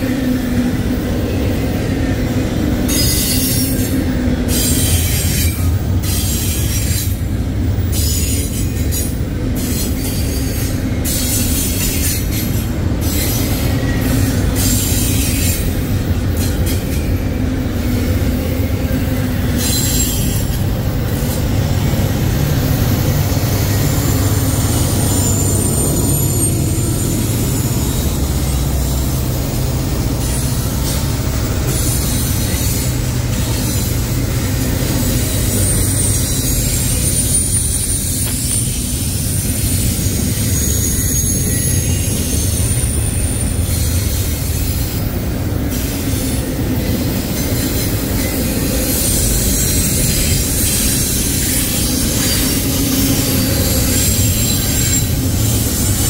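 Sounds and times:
train wheels rumbling on rail: 0.0 - 56.0
high-pitched wheel squeal: 18.4 - 21.3, 22.9 - 45.1, 45.7 - 56.0.

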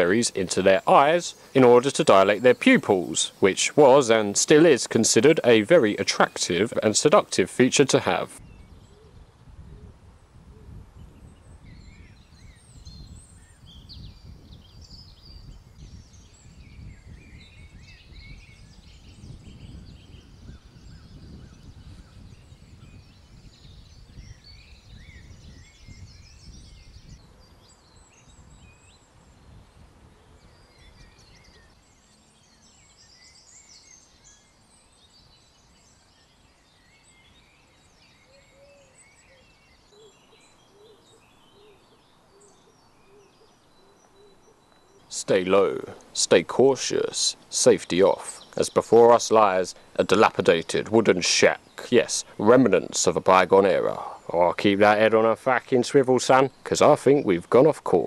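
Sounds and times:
small birds chirping and singing: 0.0 - 58.0
wind rumble on microphone: 8.4 - 38.2.

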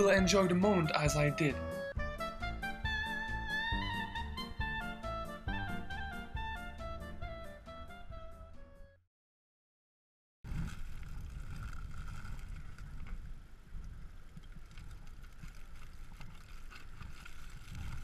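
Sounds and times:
wind rumble on microphone: 10.5 - 18.0.

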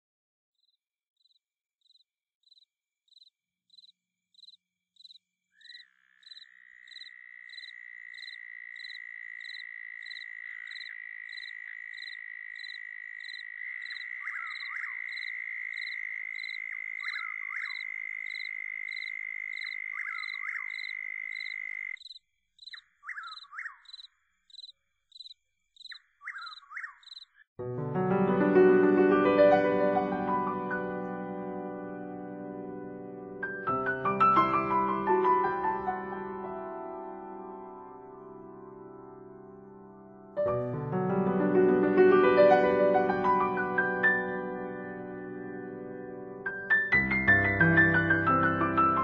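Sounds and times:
cricket chirping: 0.6 - 27.5
short sweeping calls: 20.0 - 27.4.

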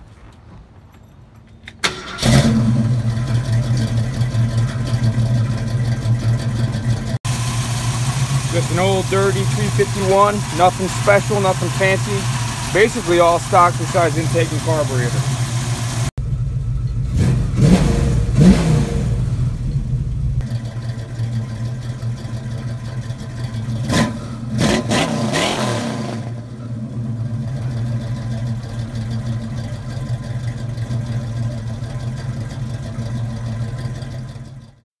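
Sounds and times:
car engine idling and revving: 1.2 - 34.8.

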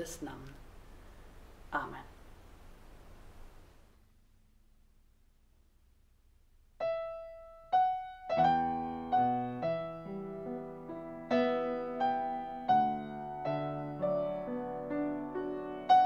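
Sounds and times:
upright piano chords: 6.8 - 16.0.

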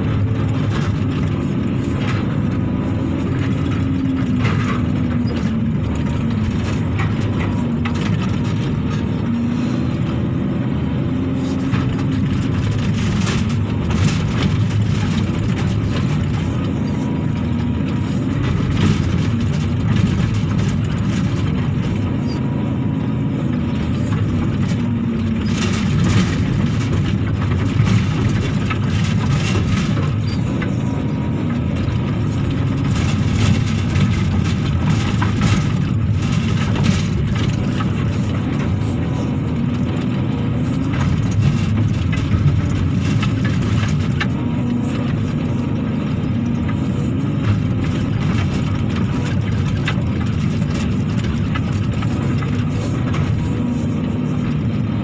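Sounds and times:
knocks and rattles: 0.0 - 9.4, 11.6 - 22.4, 23.5 - 54.6
excavator diesel engine under load: 0.0 - 55.0.

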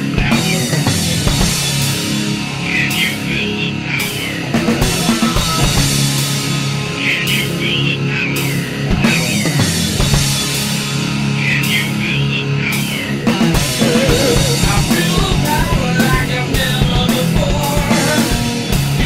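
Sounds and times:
heavy rock band music: 0.0 - 19.0
high wavering guitar notes: 13.6 - 15.8.

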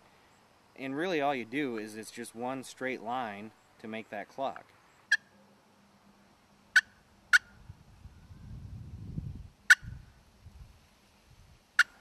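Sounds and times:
turkey call clucks: 5.1 - 5.4, 6.7 - 7.6, 9.7 - 9.9, 11.8 - 12.0.

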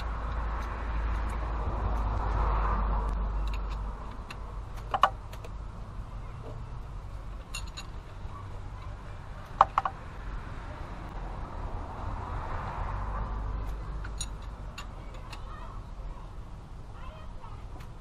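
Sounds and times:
metal wrench clicks: 3.4 - 5.5.

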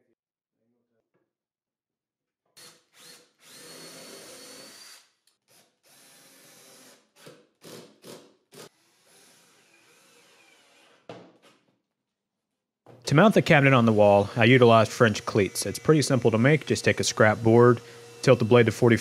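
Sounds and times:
cordless drill motor whining: 2.6 - 5.1, 14.8 - 19.0.

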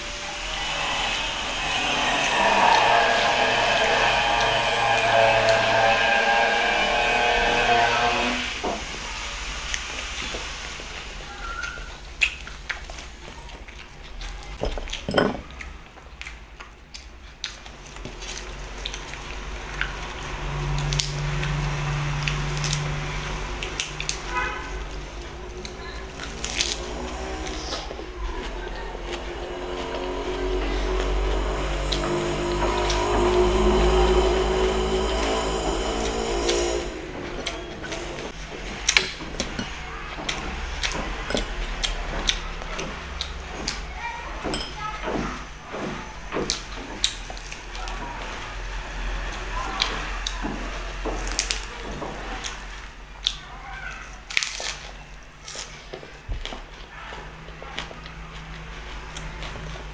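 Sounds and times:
chewing crackles and clicks: 11.4 - 24.3, 49.3 - 53.5
fingers tearing crispy meat: 53.2 - 55.7
lettuce leaves crinkling: 53.5 - 59.9.

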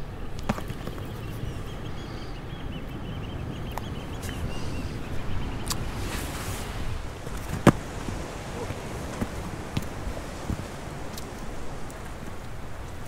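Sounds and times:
bird twittering faintly: 0.0 - 6.9
sea surf on rocky shore: 0.0 - 13.0
wind: 0.0 - 13.0.

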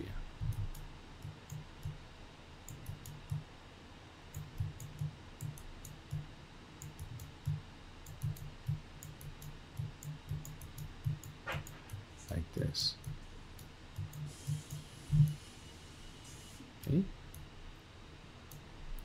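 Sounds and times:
computer mouse buttons clicking: 2.7 - 3.4, 4.3 - 12.0, 13.0 - 15.4.

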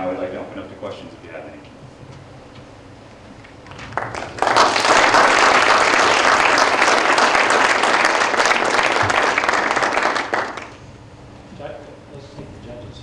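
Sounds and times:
audience applauding: 3.6 - 10.8.

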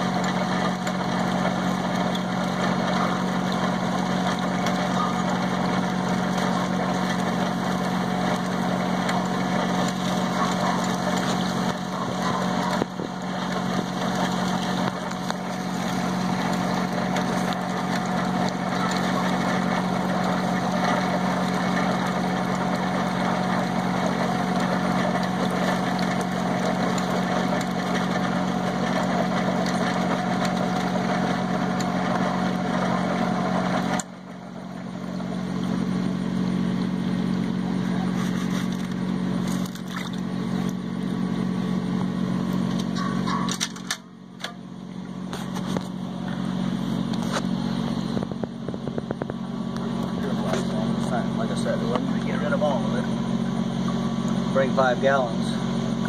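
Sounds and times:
motor and pump humming: 0.0 - 56.0
water splashing into a tub: 38.3 - 40.8.

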